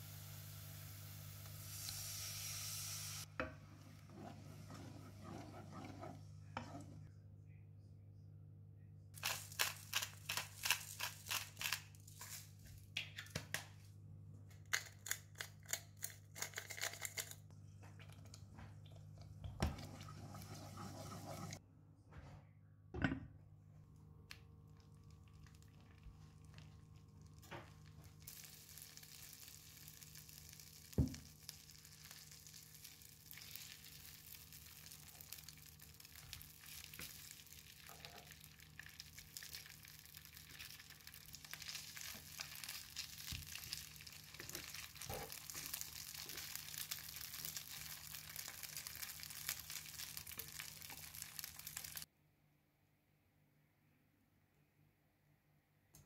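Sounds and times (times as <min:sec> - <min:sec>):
food sizzling in hot oil: 0:00.0 - 0:03.3, 0:28.1 - 0:52.1.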